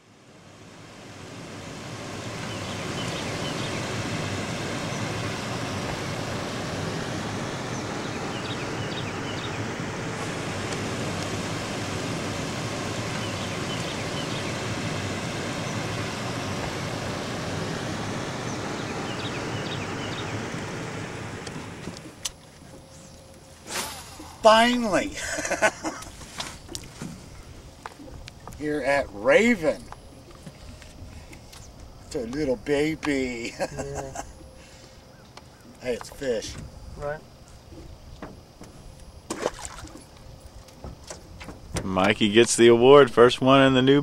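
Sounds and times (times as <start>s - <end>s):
steady rushing noise: 0.0s - 22.2s.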